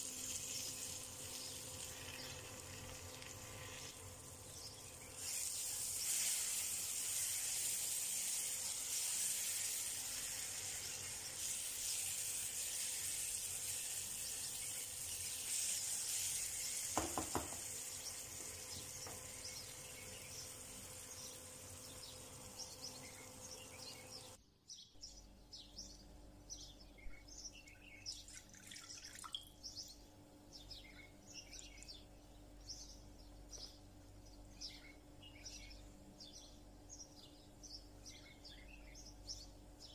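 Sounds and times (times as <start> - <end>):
vegetables sizzling in oil: 0.0 - 24.4
faint bird chirps: 8.2 - 39.9.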